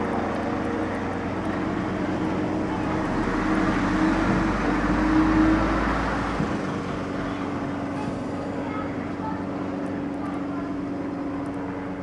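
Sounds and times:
helicopter flying overhead: 0:06.5 - 0:12.0.

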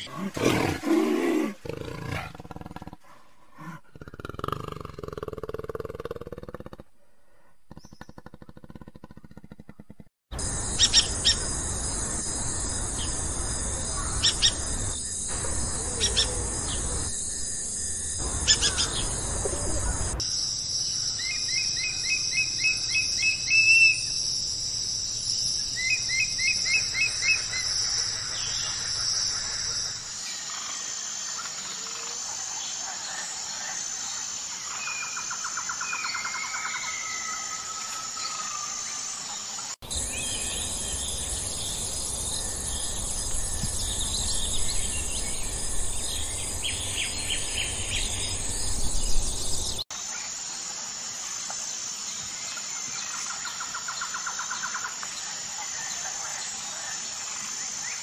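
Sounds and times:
high insect drone: 0:10.4 - 0:58.0
bird calls: 0:12.8 - 0:17.2, 0:18.2 - 0:20.2.

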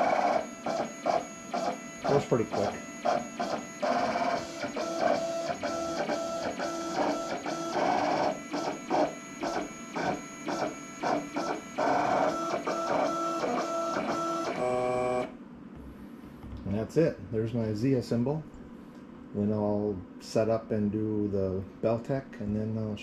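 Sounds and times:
vinyl cutter motors whining: 0:00.0 - 0:15.4.

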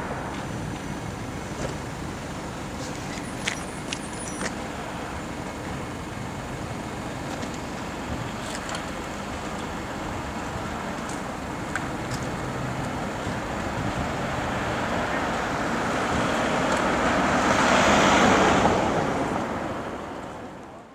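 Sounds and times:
street noise: 0:00.0 - 0:20.9
tram rumble and hiss: 0:00.0 - 0:20.9.

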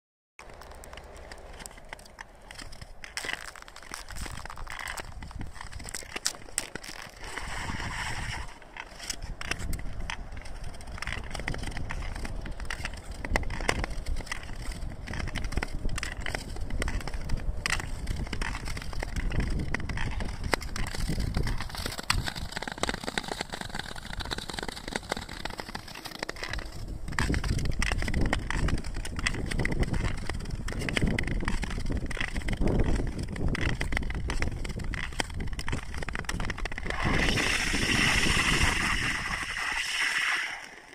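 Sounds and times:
ice clicking and cracking: 0:00.4 - 0:40.9
ice skate blades scraping: 0:00.4 - 0:40.9.

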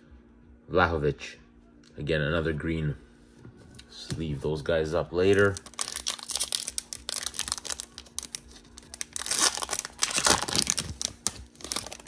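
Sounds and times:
plastic wrapper tearing and crinkling: 0:05.2 - 0:12.0.

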